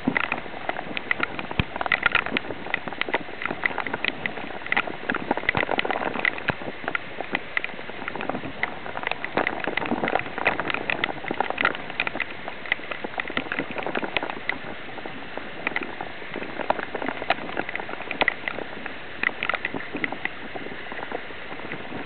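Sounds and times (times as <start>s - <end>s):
bicycle wheel through floodwater: 0.0s - 22.0s
heavy rain drops ticking: 0.0s - 22.0s.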